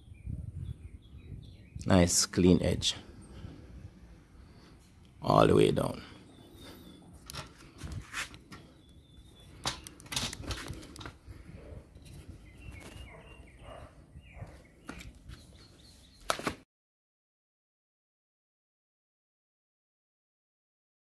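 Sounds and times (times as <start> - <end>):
small bird chirping: 12.0 - 16.3.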